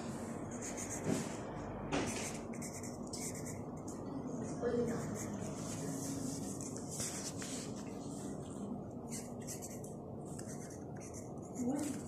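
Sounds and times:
pencil scratching on paper: 0.5 - 1.3, 2.0 - 7.8, 9.1 - 9.8, 10.4 - 12.0.

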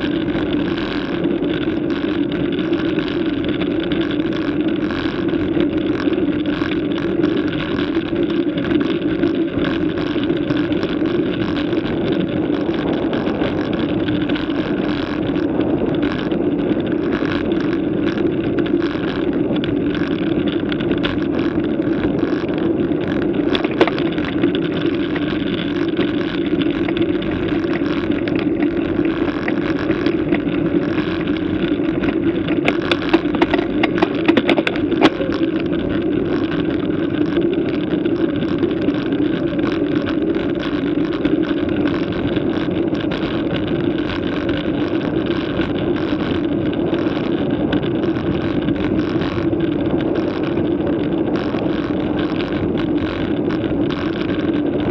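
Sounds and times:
bicycle tyre rumble: 0.0 - 54.9
sharp clicks and knocks: 0.0 - 54.9
wind noise: 0.0 - 54.9.

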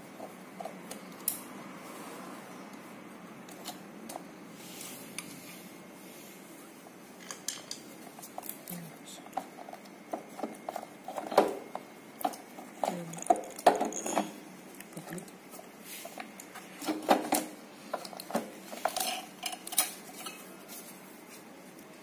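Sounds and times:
plastic and metal parts rattling: 12.8 - 14.4.

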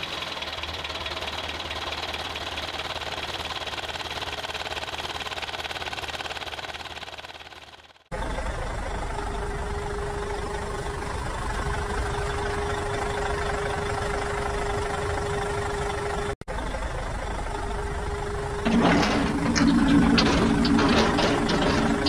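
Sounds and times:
engine idling hum: 0.0 - 22.0
rattling engine with clicks: 18.6 - 22.0.

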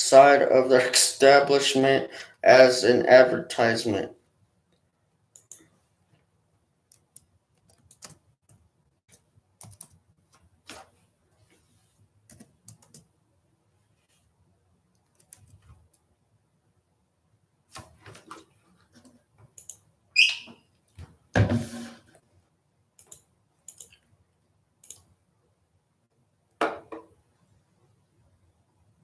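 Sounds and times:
keyboard and mouse clicks: 4.7 - 5.8, 6.9 - 10.0, 12.3 - 13.1, 14.9 - 16.1, 17.8 - 19.9, 23.0 - 24.1, 24.8 - 25.1
short high squeak: 20.2 - 20.6.

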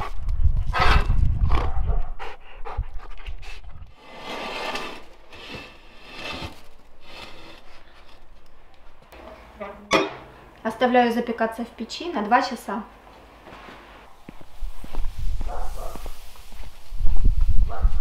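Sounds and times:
dog panting hard: 1.8 - 3.7.

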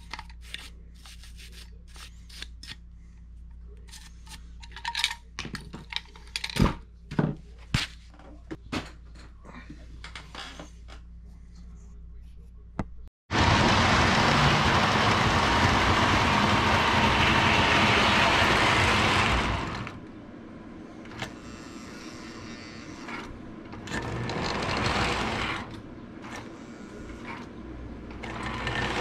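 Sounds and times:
model train running on track: 13.3 - 19.9.

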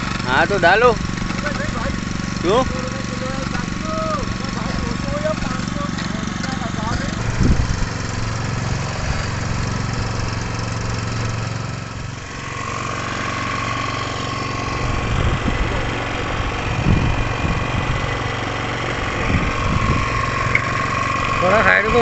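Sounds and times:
boat engine running: 0.0 - 22.0
high whine: 7.0 - 22.0.

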